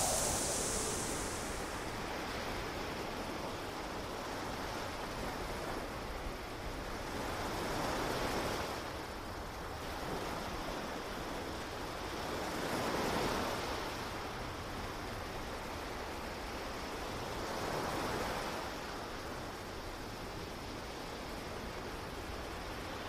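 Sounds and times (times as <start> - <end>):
ocean surf washing onto beach: 0.0 - 1.9.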